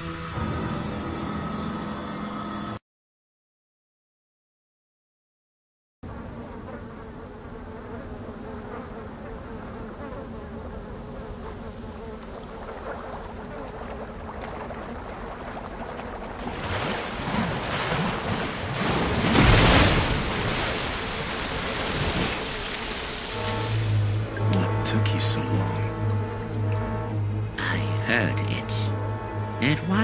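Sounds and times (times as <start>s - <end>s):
swarm of wasps buzzing: 6.1s - 14.4s, 18.8s - 30.0s.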